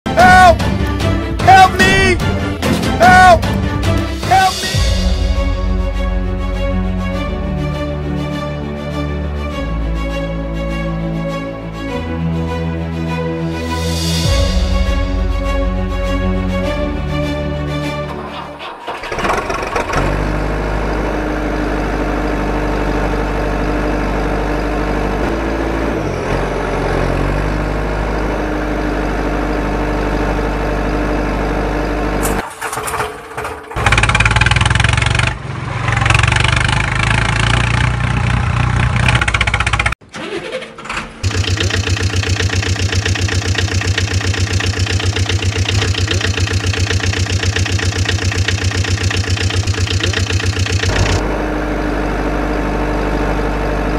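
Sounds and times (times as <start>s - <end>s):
engine revving: 13.7s - 32.4s, 33.6s - 53.9s
vehicle engine running: 13.9s - 40.0s, 41.0s - 53.9s
engine idling with rapid chug: 18.1s - 20.5s, 32.7s - 40.0s, 41.2s - 51.5s.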